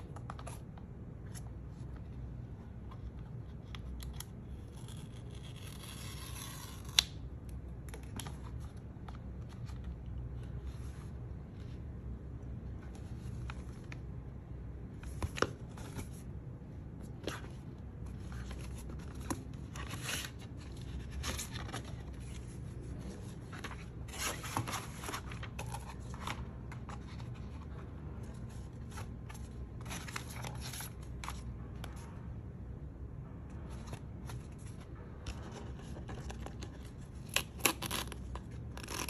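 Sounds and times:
cardboard packaging rustling: 17.0 - 27.7.

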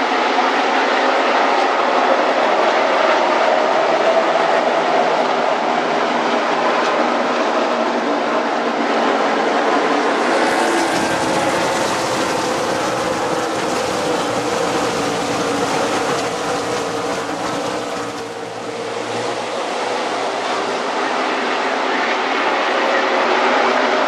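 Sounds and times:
race cars engines roaring: 0.0 - 24.0.

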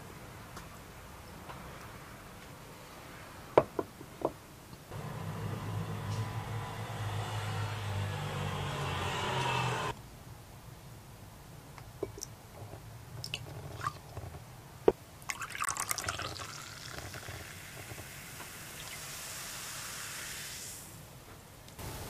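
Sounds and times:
sparkling water pouring into glass: 15.3 - 20.8
high fizzing hiss of bubbles: 15.4 - 21.1.

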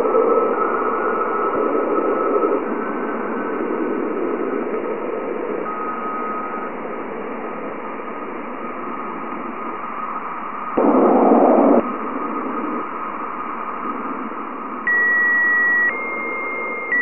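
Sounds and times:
radio-like hiss: 0.0 - 17.0
faint held tone: 14.9 - 17.0
high steady tone: 14.9 - 17.0.

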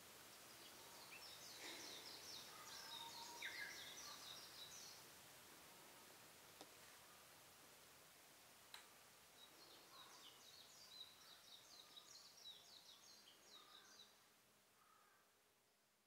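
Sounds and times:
bird chirping: 0.3 - 5.0, 9.4 - 14.2.

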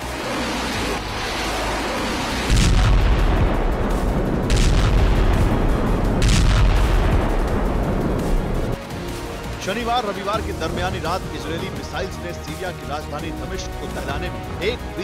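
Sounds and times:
deep explosion rumble: 0.2 - 8.8
sharp explosion blasts: 2.1 - 8.8.

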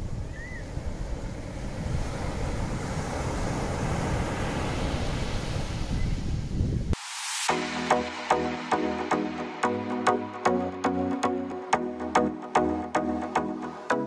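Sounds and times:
wind buffeting microphone: 0.0 - 7.0
surf washing: 0.0 - 10.1.

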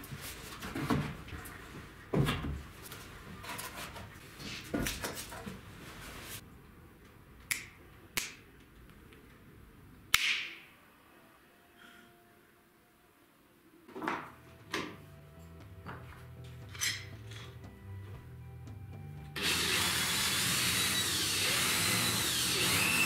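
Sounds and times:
finger snaps: 7.5 - 8.4.

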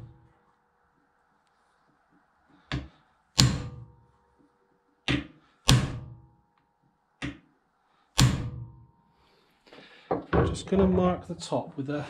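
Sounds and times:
hammer striking metal punch: 2.7 - 4.0, 5.1 - 6.3, 8.2 - 8.9.

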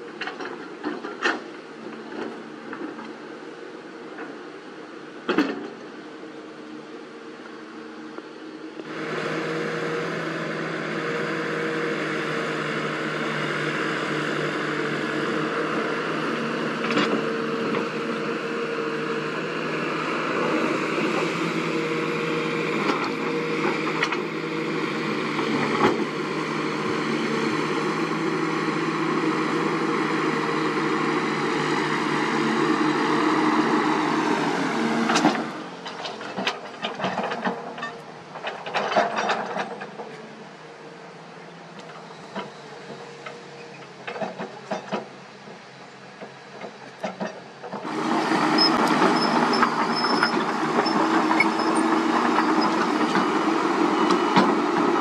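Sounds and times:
large engine running: 8.0 - 55.0.

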